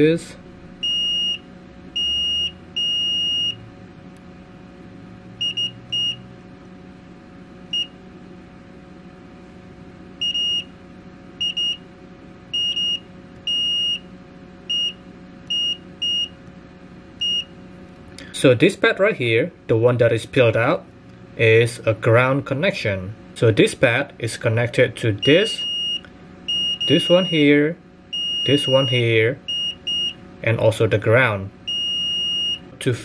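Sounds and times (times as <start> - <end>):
multimeter beeps: 0.8 - 3.6, 5.4 - 6.2, 7.7 - 8.0, 10.2 - 10.7, 11.4 - 11.8, 12.5 - 14.1, 14.7 - 16.4, 17.2 - 17.6, 25.2 - 30.2, 31.6 - 32.7.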